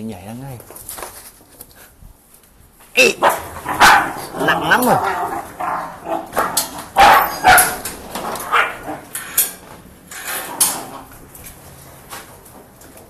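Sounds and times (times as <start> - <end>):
dogs barking: 3.0 - 9.1.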